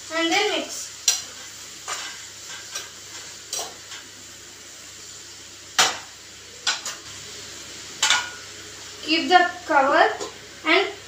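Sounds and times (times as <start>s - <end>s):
onions sizzling in oil: 0.0s - 11.0s
spoon scraping frying pan: 0.4s - 4.2s, 5.8s - 7.2s, 8.0s - 8.5s.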